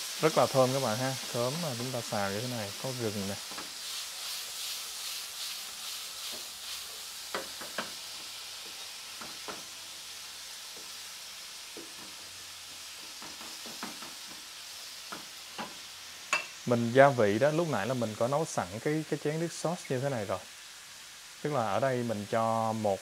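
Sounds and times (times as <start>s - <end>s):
food sizzling in a frying pan: 0.0s - 23.0s
wooden spatula scraping a pan: 1.2s - 9.6s.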